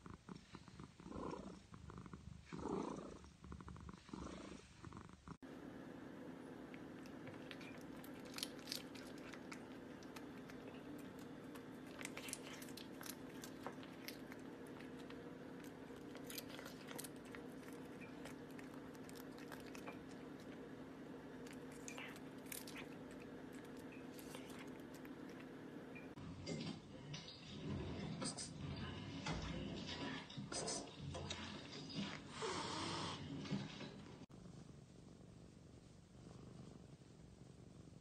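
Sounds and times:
steady low hum: 4.6s - 27.0s
cat chewing crunches: 5.6s - 26.1s.

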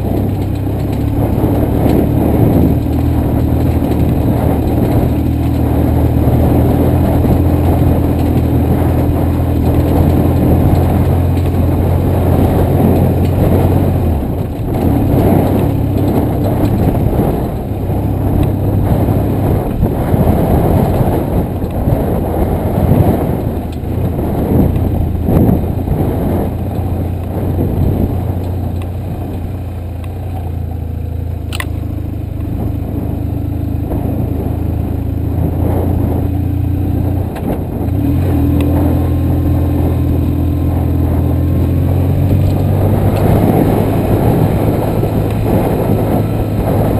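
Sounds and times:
clatter over stones: 0.0s - 19.0s
motorcycle engine running: 0.0s - 46.9s
wind: 0.0s - 46.9s
sharp click: 31.5s - 31.8s.

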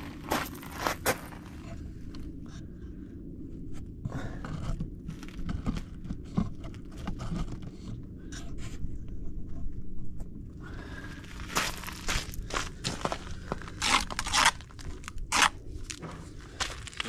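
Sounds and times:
footsteps on gritty rubble: 0.0s - 1.9s, 4.1s - 7.9s, 10.1s - 17.0s
steady low rumble: 0.0s - 17.0s.

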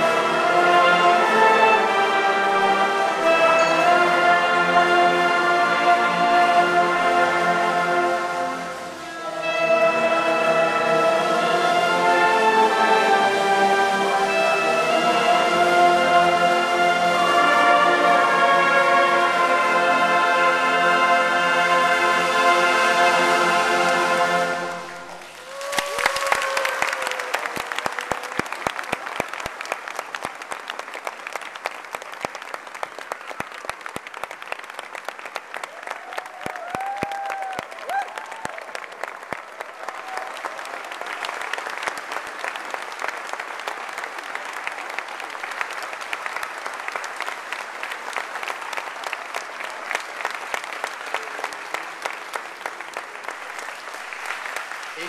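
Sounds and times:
audience applause: 0.0s - 20.5s, 22.0s - 55.0s
shouts and whoops: 25.2s - 28.6s, 35.6s - 40.8s.

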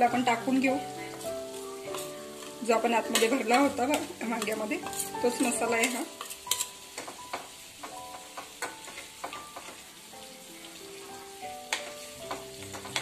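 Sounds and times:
food sizzling in a pan: 0.0s - 13.0s
soft background music: 0.0s - 13.0s
metal spoon scraping steel bowl: 3.1s - 6.8s.

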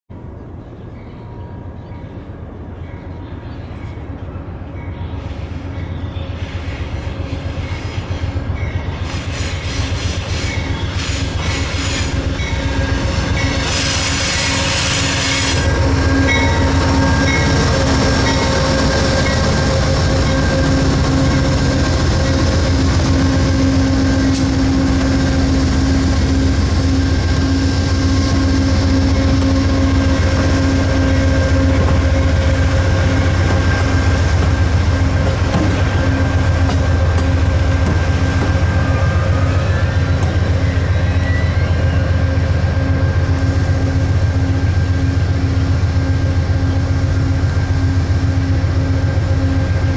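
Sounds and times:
diesel locomotive engine drone: 0.1s - 49.9s
train wheels rumbling: 0.2s - 49.9s
train wheels squealing: 0.6s - 24.6s, 28.7s - 43.7s.

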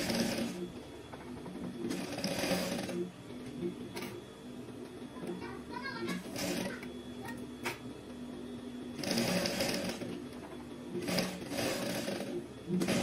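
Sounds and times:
sewing machine stitching: 0.0s - 0.6s, 1.8s - 3.1s, 6.2s - 6.9s, 9.0s - 10.2s, 11.0s - 13.0s
steady machine hum: 0.0s - 13.0s.

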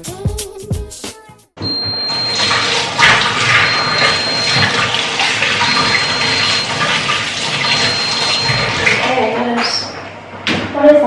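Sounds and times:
tap water running into sink: 1.7s - 9.6s.

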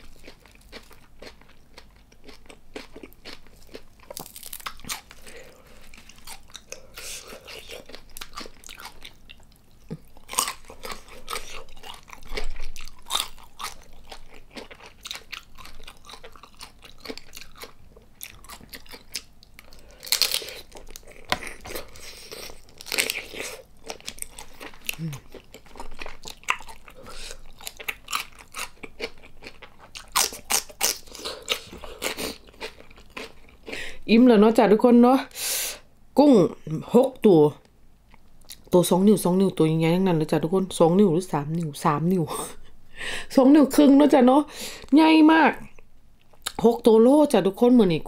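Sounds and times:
crunchy chewing and biting: 0.0s - 33.8s.

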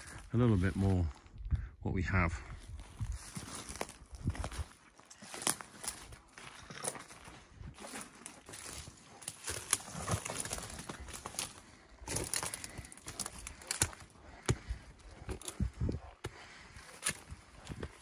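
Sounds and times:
twigs crackling underfoot: 0.0s - 1.5s, 2.5s - 18.0s
footsteps on concrete steps: 6.6s - 18.0s.

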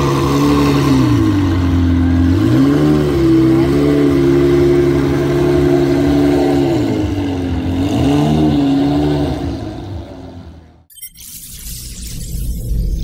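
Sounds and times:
car engine revving: 0.0s - 10.9s.

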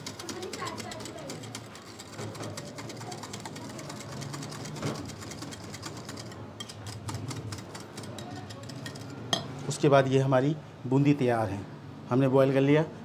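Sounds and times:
whisk clicking against bowl: 0.0s - 9.2s.

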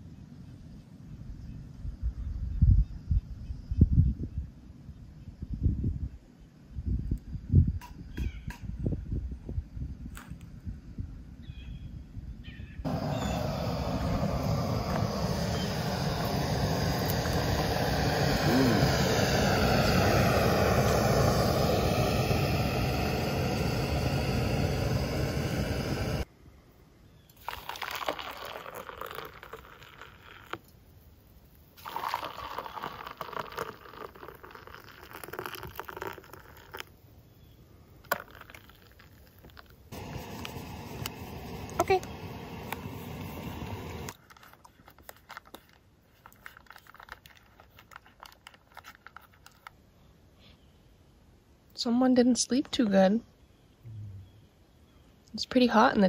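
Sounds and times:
hot water pouring into mugs: 12.9s - 26.2s, 27.4s - 30.6s, 31.8s - 36.9s, 38.0s - 44.2s
loud steady rushing noise: 12.9s - 26.2s.

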